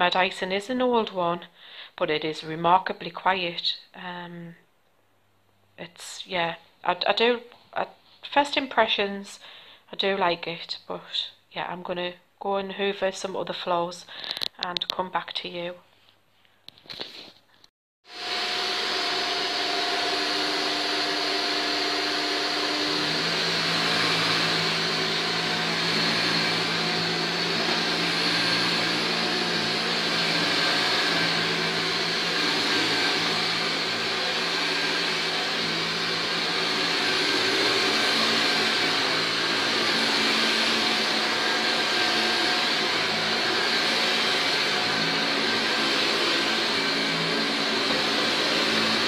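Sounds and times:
vacuum cleaner on carpet: 18.0s - 49.0s.

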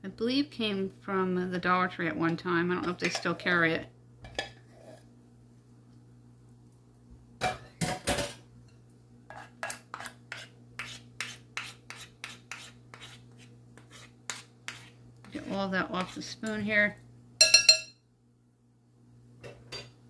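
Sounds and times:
fork scraping and tapping spoon: 9.3s - 16.6s.

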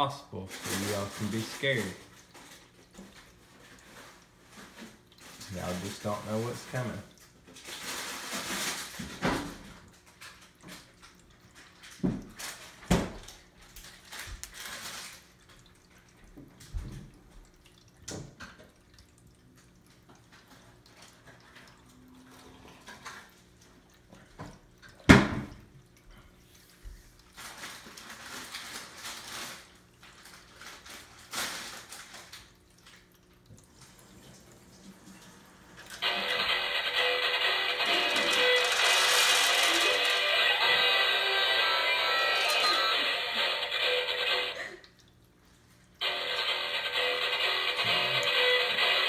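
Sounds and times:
water trickling: 0.4s - 8.1s, 9.5s - 36.2s, 39.9s - 46.0s
pump hum: 32.0s - 49.0s.

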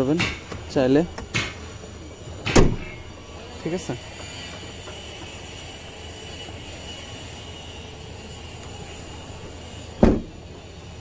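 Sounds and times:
sharp thump: 2.5s - 2.9s, 10.0s - 10.3s.

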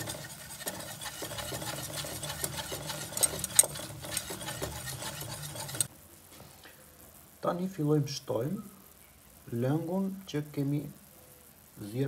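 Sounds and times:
wire whisk scraping metal pan: 0.0s - 5.9s.

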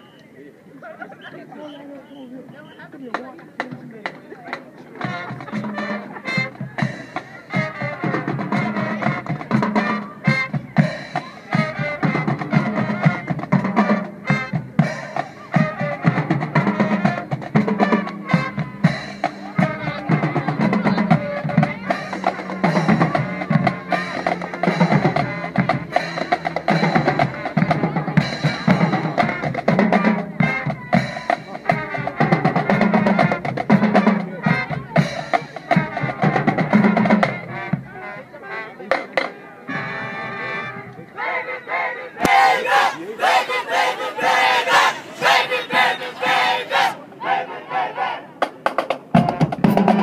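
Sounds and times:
marching band playing: 2.4s - 50.0s
snare and bass drums beating: 3.1s - 37.9s, 48.4s - 50.0s.

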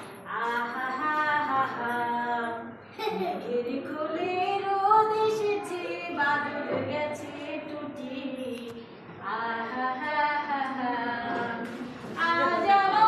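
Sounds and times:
children and woman singing: 3.4s - 13.0s.

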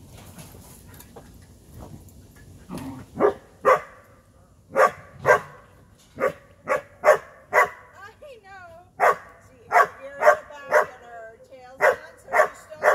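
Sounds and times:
dog barking: 3.2s - 4.0s, 4.7s - 7.9s, 9.0s - 11.0s, 11.8s - 12.9s.

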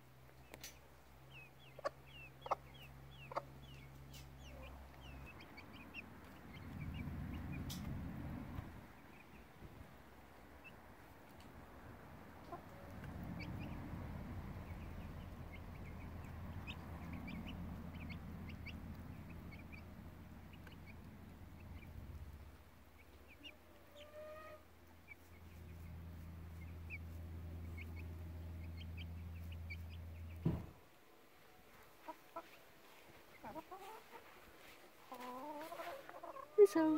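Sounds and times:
chicks peeping: 0.3s - 30.7s, 31.7s - 36.9s
loud thump: 30.4s - 30.8s.

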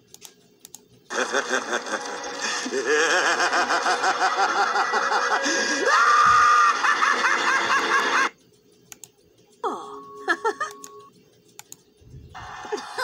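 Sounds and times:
cartoon character cackling: 1.1s - 8.3s.

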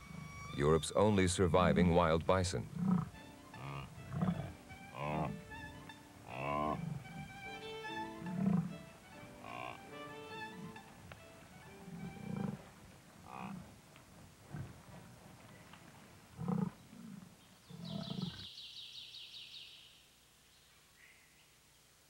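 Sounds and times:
bison grunting and bellowing: 2.6s - 5.5s, 6.2s - 7.3s, 8.2s - 8.7s, 9.4s - 9.8s, 11.8s - 13.7s, 16.3s - 18.5s.

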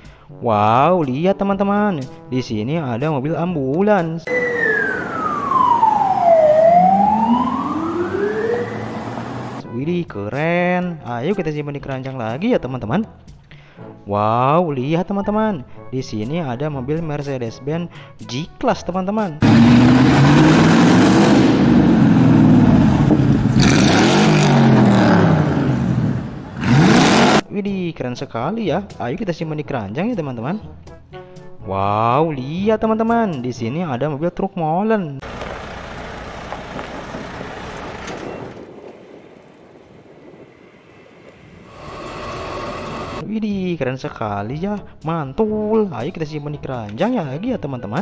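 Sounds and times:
car engine revving: 4.3s - 9.6s, 19.4s - 27.4s, 35.2s - 38.2s
concrete mixer truck rumbling: 19.4s - 27.4s, 35.2s - 43.2s.

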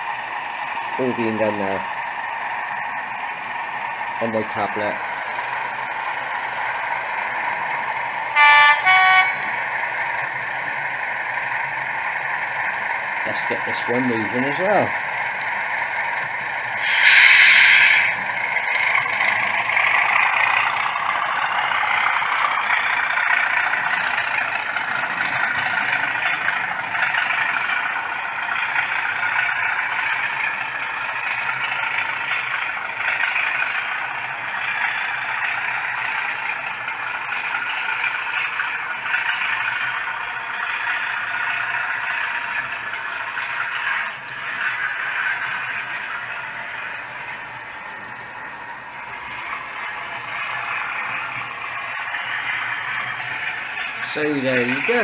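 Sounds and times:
loud brief burst: 16.8s - 18.2s.

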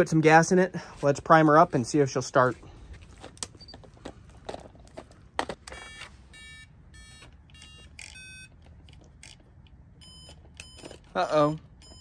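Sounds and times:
short electronic beeps: 5.8s - 8.5s.

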